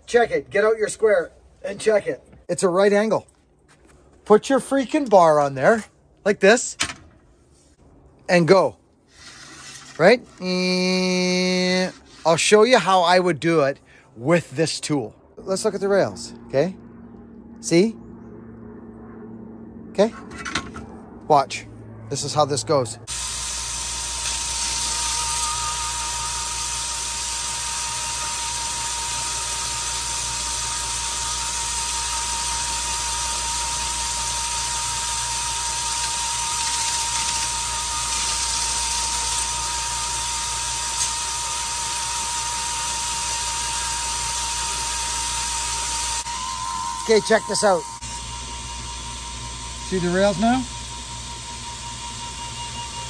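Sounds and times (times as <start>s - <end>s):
electric grinder whining: 23.1s - 53.0s
grinding hiss on steel: 23.1s - 53.0s.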